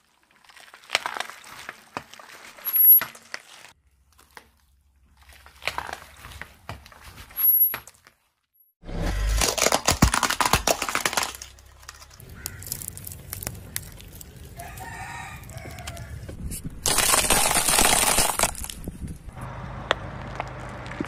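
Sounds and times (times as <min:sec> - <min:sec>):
objects crunching under car tyre: 0:00.0 - 0:08.2, 0:08.9 - 0:21.0
low engine hum: 0:19.2 - 0:21.0.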